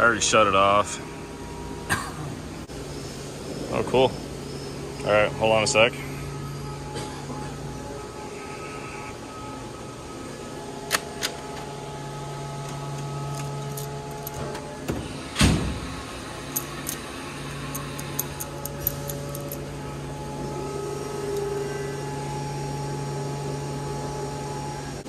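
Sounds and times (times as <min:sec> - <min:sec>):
steady low hum: 0:00.0 - 0:25.0
hand tools clinking on metal: 0:17.7 - 0:19.6.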